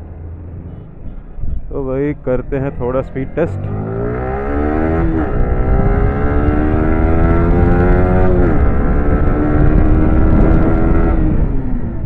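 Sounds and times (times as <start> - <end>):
motorcycle engine accelerating: 0.0 - 12.0
wind and road noise: 0.0 - 12.0.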